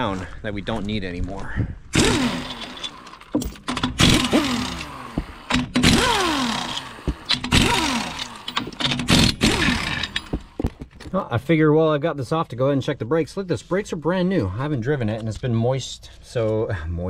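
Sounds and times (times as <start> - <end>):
impact wrench rattling: 1.9 - 11.1.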